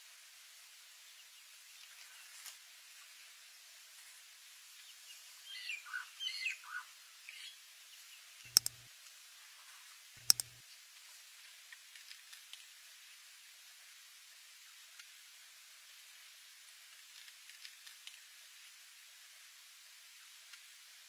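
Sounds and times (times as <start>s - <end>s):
faint outdoor hiss: 0.0s - 21.0s
double mouse-click effects: 8.5s - 8.9s, 10.2s - 10.6s.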